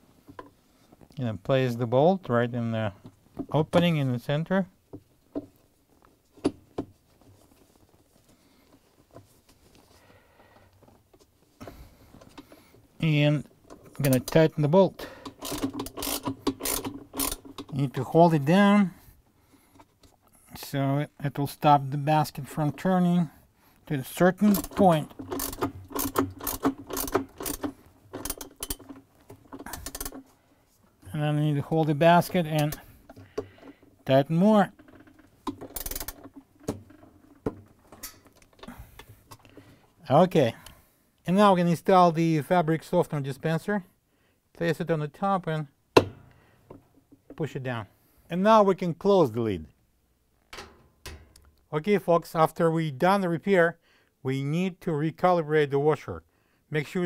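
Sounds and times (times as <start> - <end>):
ratchet wrench clicking: 15.3 - 17.7, 24.5 - 28.9, 29.6 - 30.2, 35.7 - 36.2.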